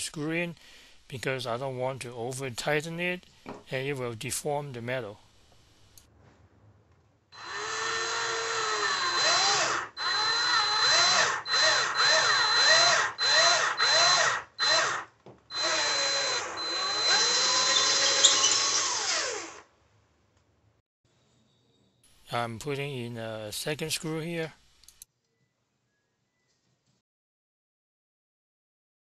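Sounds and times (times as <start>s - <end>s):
cordless drill whining: 7.4s - 19.7s.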